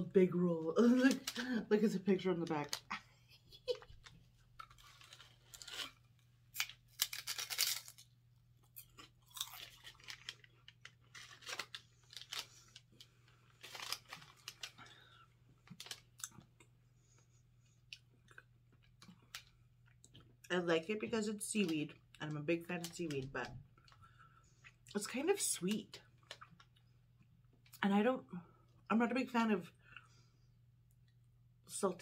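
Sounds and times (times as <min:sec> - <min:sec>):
person chewing crunchy snack: 0:04.6 - 0:12.8.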